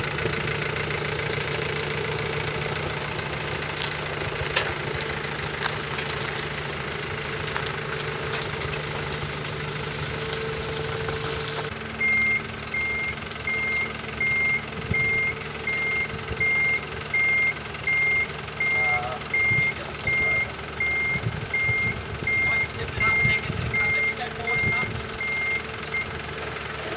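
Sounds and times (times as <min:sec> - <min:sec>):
truck engine idling: 0:00.0 - 0:26.9
reversing alarm beeping: 0:12.0 - 0:26.1.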